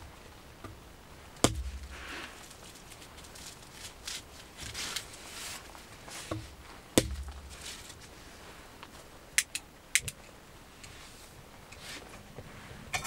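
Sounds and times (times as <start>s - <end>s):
sharp chop: 1.4s - 1.9s
rustling and tearing: 1.6s - 9.1s.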